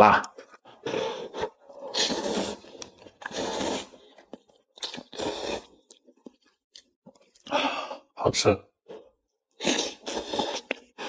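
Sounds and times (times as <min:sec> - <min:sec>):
slurping noodles: 0:00.5 - 0:06.1, 0:09.5 - 0:11.0.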